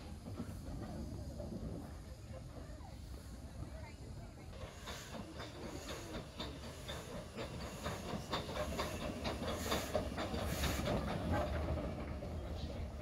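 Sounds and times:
steam hissing: 0:00.0 - 0:13.0
steam locomotive rumbling past: 0:00.0 - 0:13.0
wheels clicking and clanking: 0:04.5 - 0:13.0.

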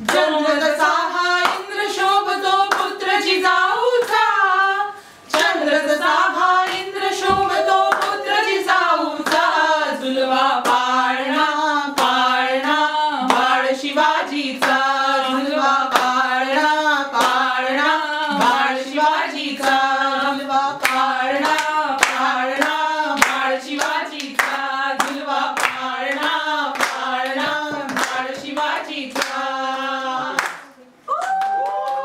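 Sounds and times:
hands clapping in steady beat: 0:00.0 - 0:03.1, 0:03.9 - 0:04.3, 0:05.3 - 0:05.6, 0:06.4 - 0:09.7, 0:10.5 - 0:32.0
women singing together: 0:00.0 - 0:30.8.

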